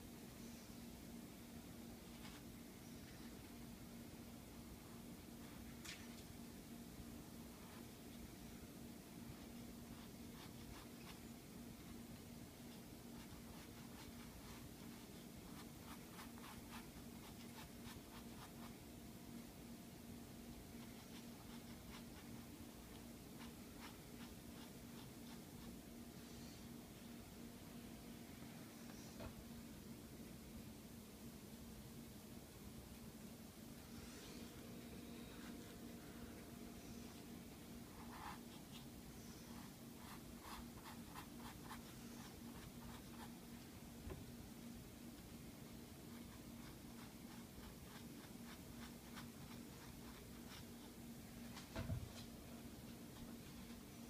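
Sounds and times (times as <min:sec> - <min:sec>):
faint low hum: 0:00.0 - 0:54.0
paintbrush scratching on canvas: 0:12.7 - 0:18.8, 0:37.8 - 0:43.4, 0:46.1 - 0:50.9
paintbrush strokes on canvas: 0:20.7 - 0:25.8, 0:36.8 - 0:43.5, 0:46.1 - 0:51.0.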